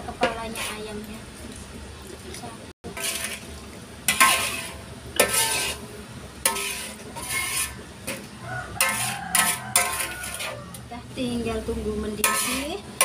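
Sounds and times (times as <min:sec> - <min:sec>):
metal spatula scraping wok: 0:00.0 - 0:01.0, 0:02.9 - 0:13.0
metallic ring of pan: 0:08.8 - 0:10.5.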